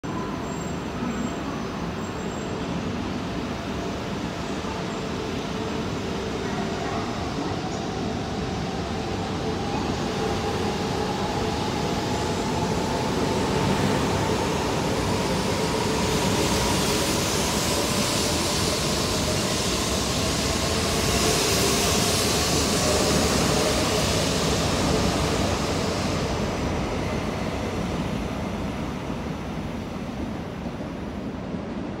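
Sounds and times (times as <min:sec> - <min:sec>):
train wheels rushing: 0:07.2 - 0:30.2.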